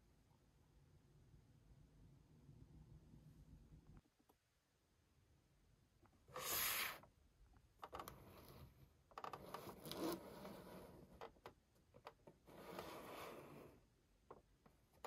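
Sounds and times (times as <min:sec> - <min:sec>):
toy box scraping on tabletop: 0:06.3 - 0:07.0, 0:08.0 - 0:11.2, 0:12.4 - 0:13.8
box rubbing and scraping: 0:09.4 - 0:11.2, 0:12.4 - 0:13.8.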